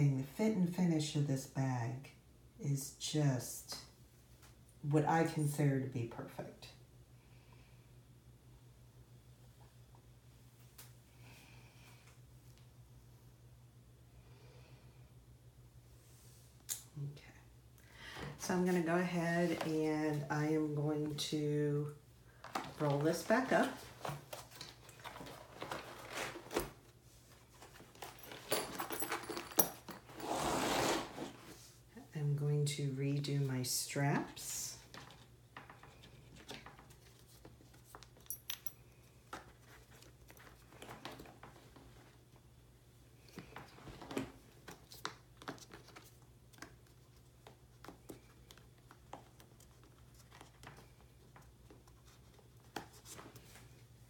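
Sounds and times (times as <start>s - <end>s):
strap and buckle clicks and rustles: 22.4s - 31.4s
canvas rustling and scraping: 30.0s - 31.7s.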